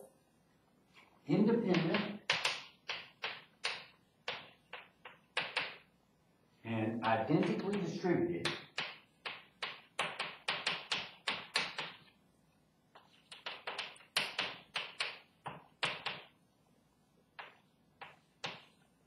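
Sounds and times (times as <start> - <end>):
chalk tapping on chalkboard: 1.7 - 5.8, 7.4 - 12.1, 13.0 - 16.3, 17.4 - 18.8.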